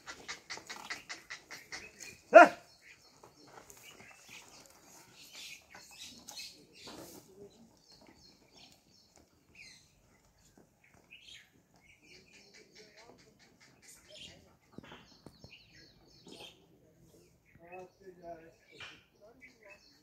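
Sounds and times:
bird chirps: 7.8 - 20.0.

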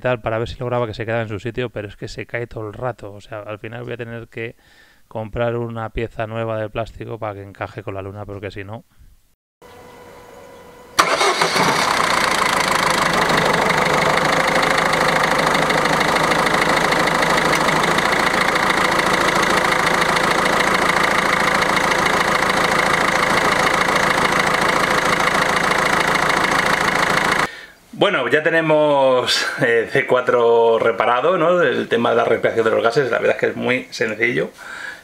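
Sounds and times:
diesel engine starting and idling: 11.0 - 27.5.

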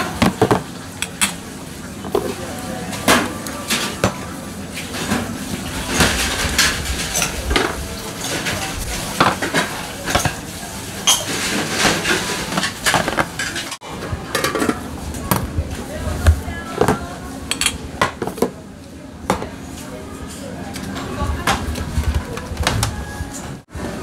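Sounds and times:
metal bowls and tongs clinking: 5.9 - 13.8, 17.5 - 17.8.

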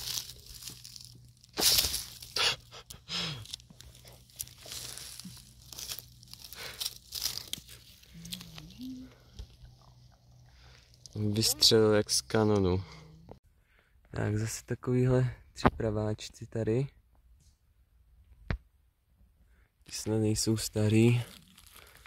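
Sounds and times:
crunching of dry forest litter: 0.0 - 13.0, 20.2 - 22.0.

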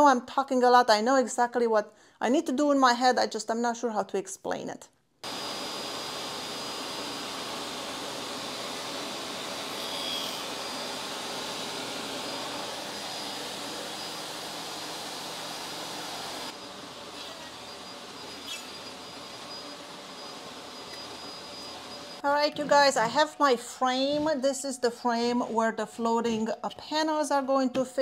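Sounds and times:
table saw motor whine: 5.2 - 22.2.

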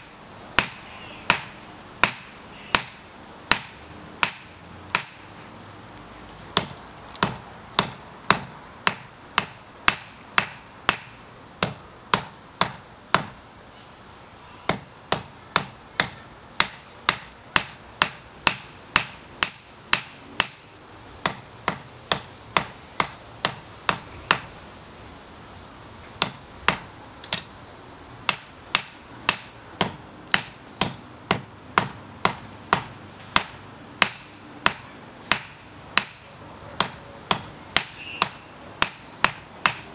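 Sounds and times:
hammer striking hot steel on anvil: 0.0 - 5.5, 6.5 - 13.6, 14.7 - 24.6, 26.2 - 27.5, 28.3 - 39.9.

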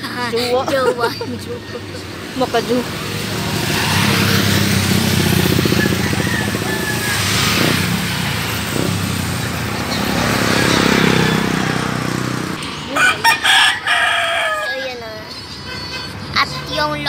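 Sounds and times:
tyre and road noise: 0.0 - 17.0
vehicle passing by: 0.4 - 17.0
motorcycle engine passing: 2.1 - 14.6.

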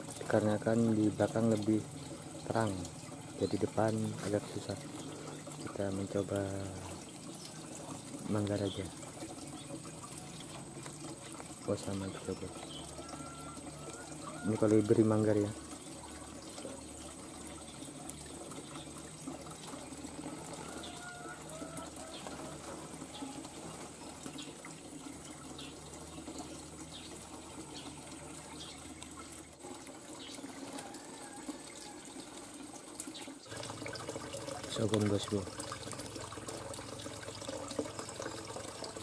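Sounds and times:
trickling water: 0.0 - 39.0
small birds chirping: 11.2 - 14.5, 19.9 - 29.5.

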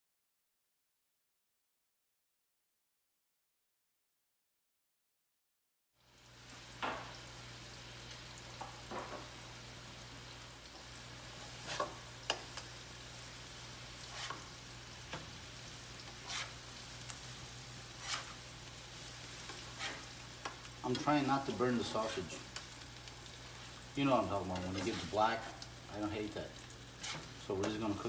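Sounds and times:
sausage sizzling in a frying pan: 6.0 - 28.0
utensil scraping a pan: 11.3 - 12.7, 13.9 - 18.6, 19.3 - 22.8, 24.3 - 25.7, 26.9 - 27.9.

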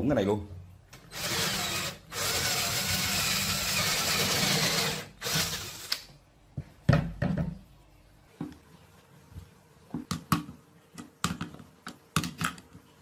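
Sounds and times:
power drill boring through wood: 1.1 - 6.0.

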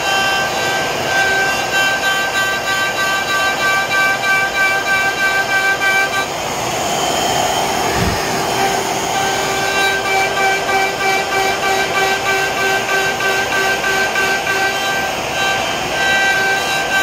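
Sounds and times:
router spindle whine: 0.0 - 17.0
vacuum rushing: 6.3 - 9.8
dull low thump: 7.8 - 8.7.

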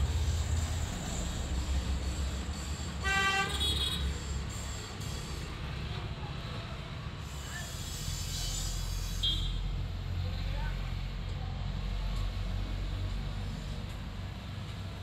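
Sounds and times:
low rumble of traffic: 0.0 - 15.0
vehicle horn toot: 3.0 - 4.1, 9.1 - 9.6.

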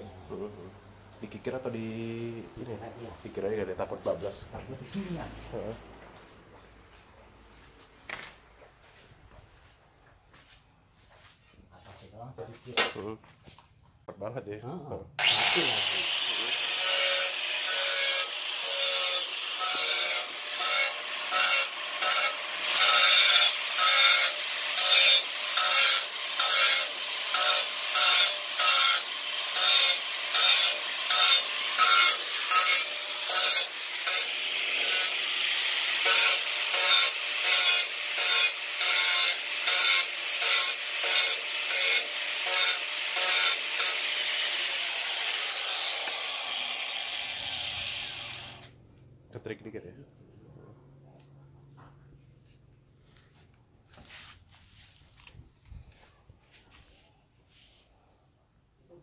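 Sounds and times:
angle grinder grinding tile: 15.2 - 48.8.

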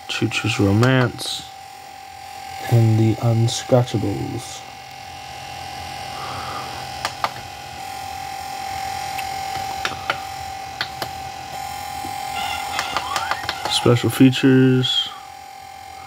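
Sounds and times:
high-pitched whine: 0.0 - 16.0
remote control button clicks: 12.7 - 13.8.

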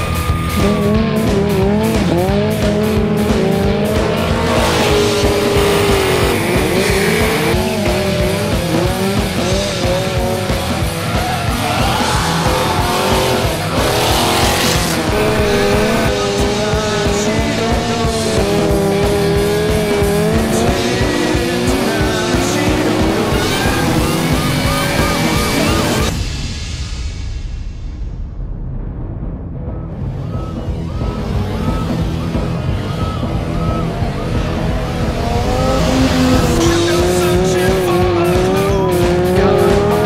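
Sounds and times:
motorcycle engines revving: 0.0 - 26.2, 30.4 - 40.0
tire squeal: 0.0 - 26.2, 30.2 - 38.0
car engine revving: 0.0 - 26.4, 30.0 - 40.0
music with a steady beat: 0.0 - 40.0.

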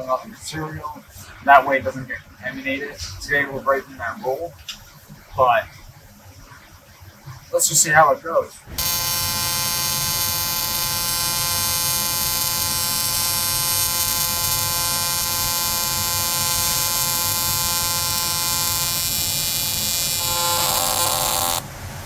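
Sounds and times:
welding arc buzzing: 8.7 - 21.8.

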